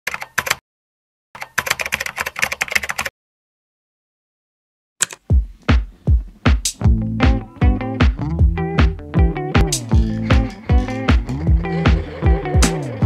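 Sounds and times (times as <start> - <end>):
computer keyboard typing: 0.1 - 0.6, 1.4 - 3.1, 5.0 - 5.2
music with deep thudding beat: 5.2 - 13.0.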